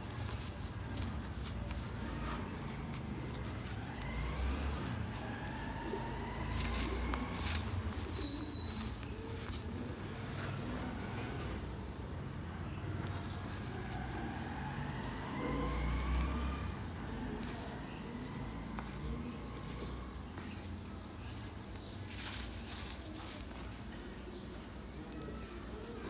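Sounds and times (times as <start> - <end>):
dirt clods crumbled by hand: 0.0 - 10.0
soil crunching and trickling: 0.0 - 10.0
birds calling: 1.9 - 14.3.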